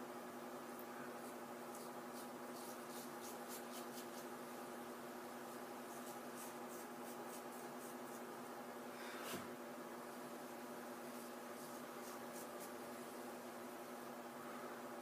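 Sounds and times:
steady hum: 0:00.0 - 0:15.0
razor scraping stubble: 0:01.2 - 0:04.3.

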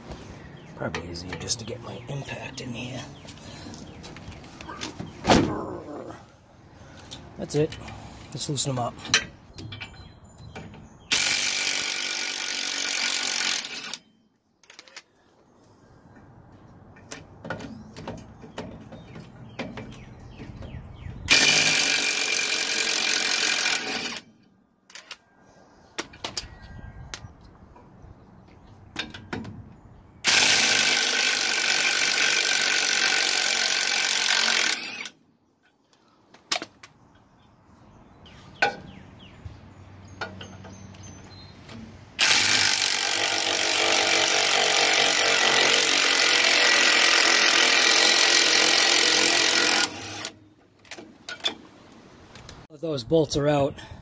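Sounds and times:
clicks and knocks of tool handling: 0:14.6 - 0:15.1, 0:50.8 - 0:51.6.

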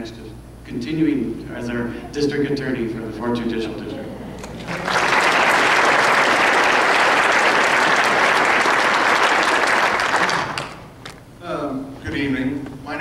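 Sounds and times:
audience applause: 0:04.4 - 0:10.9.

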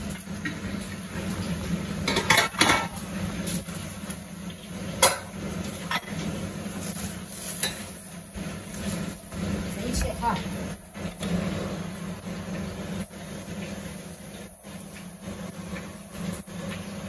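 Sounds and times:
dishes and utensils clinking: 0:02.0 - 0:03.0, 0:05.0 - 0:06.2, 0:07.6 - 0:07.9.

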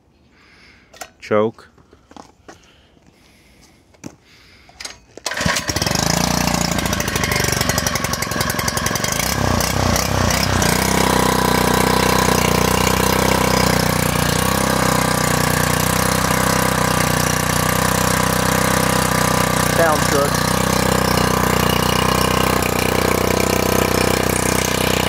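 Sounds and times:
small engine pull-started: 0:04.7 - 0:25.0
small engine running and idling: 0:05.2 - 0:25.0.

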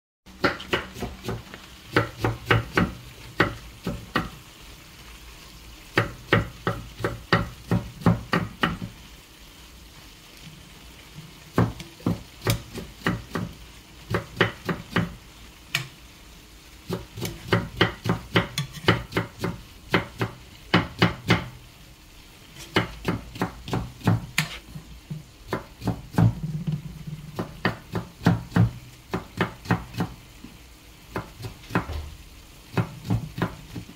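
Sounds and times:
knife chopping on wooden board: 0:00.4 - 0:04.4, 0:06.0 - 0:08.9, 0:11.6 - 0:15.2, 0:16.9 - 0:21.5, 0:22.6 - 0:26.5, 0:27.4 - 0:30.2, 0:31.1 - 0:32.1, 0:32.7 - 0:33.9.

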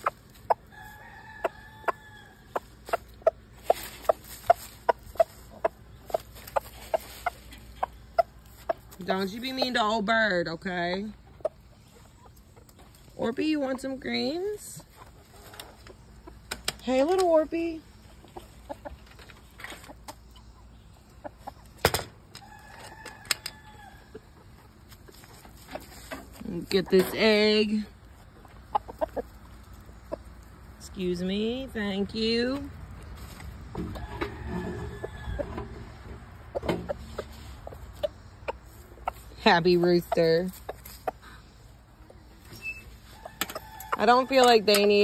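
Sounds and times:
rooster clucking: 0:00.0 - 0:12.8, 0:26.7 - 0:30.4, 0:33.7 - 0:45.0
rooster crowing: 0:00.7 - 0:02.5, 0:22.4 - 0:24.0, 0:33.9 - 0:35.6, 0:43.1 - 0:44.4.

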